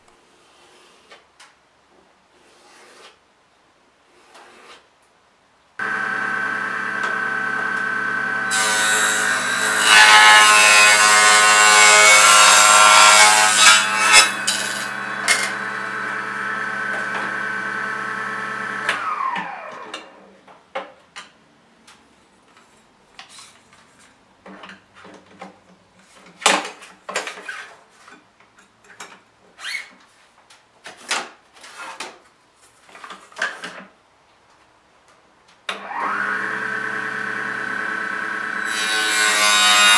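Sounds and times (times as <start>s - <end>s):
hand sanding edges: 0.3s - 1.2s, 2.3s - 3.2s
table saw cutting plywood: 5.8s - 20.0s, 35.8s - 39.9s.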